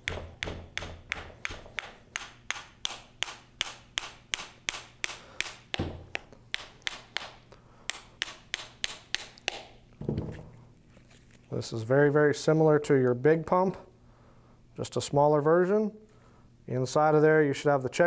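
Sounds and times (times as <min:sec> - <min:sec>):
tool tapping on metal: 0:00.0 - 0:10.2.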